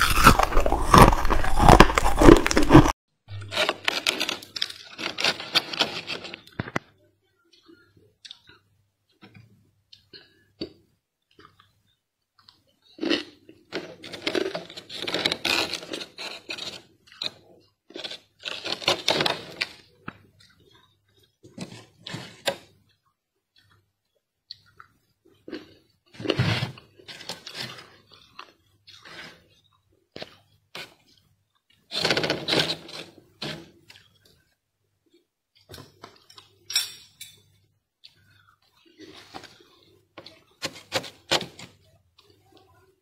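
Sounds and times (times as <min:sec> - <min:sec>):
freezer frost crunching: 0:00.0 - 0:06.8, 0:13.0 - 0:19.9.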